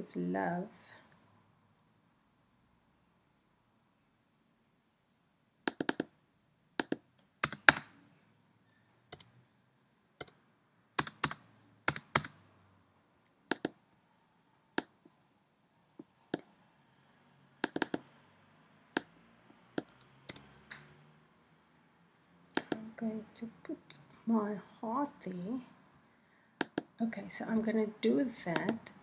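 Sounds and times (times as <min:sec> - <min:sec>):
computer keyboard keystrokes: 0:05.7 - 0:06.1, 0:06.8 - 0:07.9, 0:11.0 - 0:12.4, 0:13.5 - 0:13.8, 0:17.6 - 0:18.0
mouse clicks: 0:05.7 - 0:06.1, 0:13.5 - 0:13.8, 0:17.6 - 0:18.1, 0:26.6 - 0:26.9, 0:28.5 - 0:28.8.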